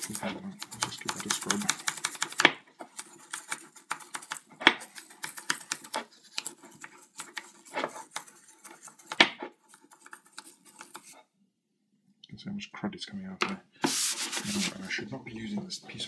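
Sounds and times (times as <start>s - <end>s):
toothbrush scrubbing metal threads: 0.0s - 11.2s.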